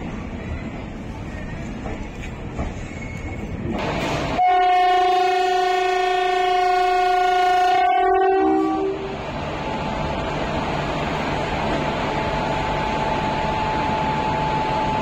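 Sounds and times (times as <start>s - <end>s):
train running rumble: 0.0s - 15.0s
train horn blast: 4.3s - 9.1s.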